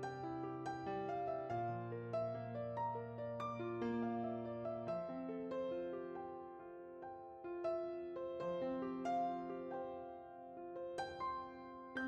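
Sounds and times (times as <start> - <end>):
soft piano melody: 0.0 - 12.0.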